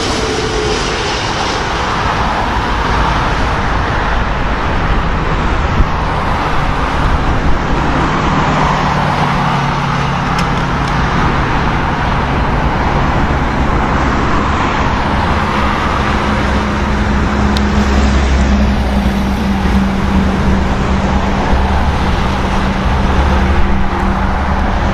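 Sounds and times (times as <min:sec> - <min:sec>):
low droning hum: 0:00.0 - 0:03.8
engine roaring: 0:00.0 - 0:24.9.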